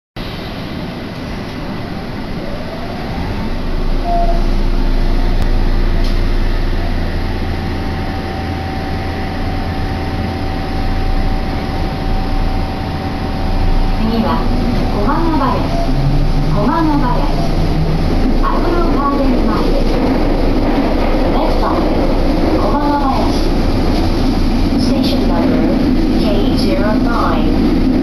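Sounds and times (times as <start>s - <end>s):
subway car running rumble: 0.2s - 28.0s
subway motor whine: 0.2s - 28.0s.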